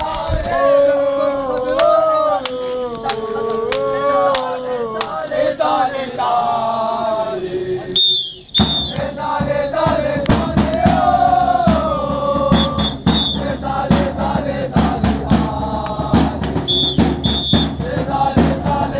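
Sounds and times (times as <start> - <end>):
football supporters chanting: 0.0 - 18.9
whistle: 8.0 - 9.1, 12.5 - 13.5, 16.6 - 17.8
drum beating: 8.6 - 18.9.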